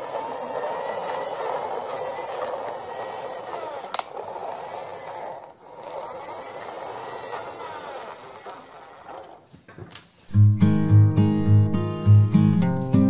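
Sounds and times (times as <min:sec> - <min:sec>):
toy wheels rolling on hard floor: 0:00.0 - 0:10.1.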